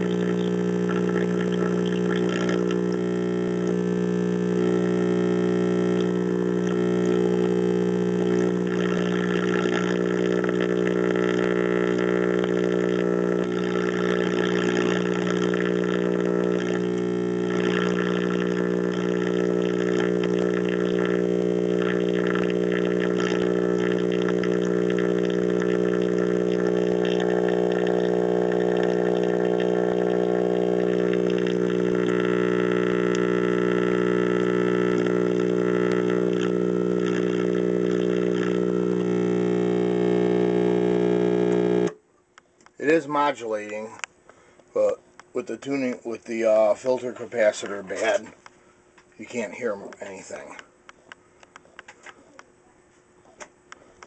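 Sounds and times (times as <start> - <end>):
radio speaker mains hum: 0.0 - 54.0
faint radio broadcast: 44.8 - 48.4, 49.2 - 50.7, 51.6 - 53.5.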